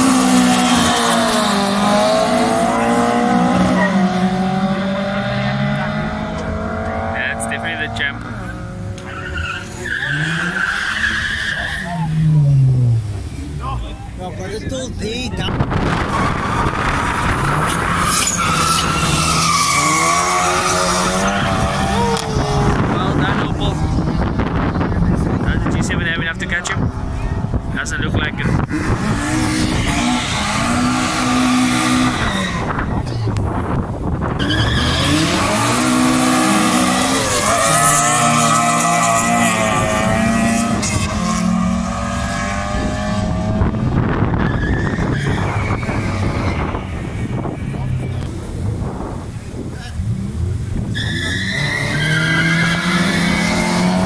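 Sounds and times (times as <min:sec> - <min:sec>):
drag car engine accelerating: 0:15.5 - 0:54.0
tyre squeal: 0:17.3 - 0:22.4, 0:50.9 - 0:53.9.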